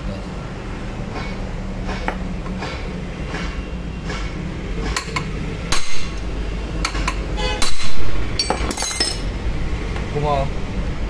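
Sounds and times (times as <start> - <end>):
hammer striking steel rod: 1.1 - 6.2, 6.8 - 9.2.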